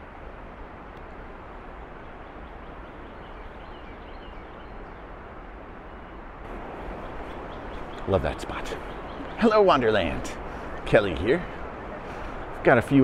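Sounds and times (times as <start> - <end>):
woodland background rush: 0.0 - 13.0
faint bird chirps: 2.0 - 5.2, 6.8 - 9.4, 10.5 - 12.5.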